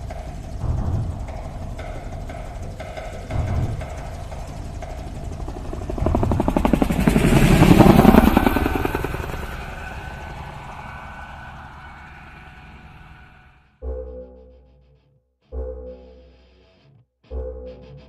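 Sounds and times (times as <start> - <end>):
helicopter rotor chop: 0.0 - 13.6.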